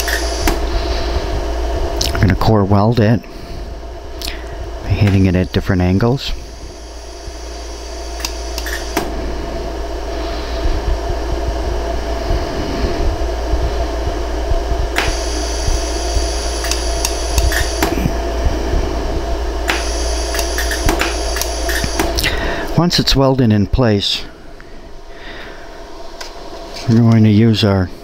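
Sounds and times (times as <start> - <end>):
laser welder clicks: 0.0 - 0.6, 8.2 - 9.1, 14.9 - 18.0, 19.6 - 22.3
steady fan hum: 0.0 - 28.0.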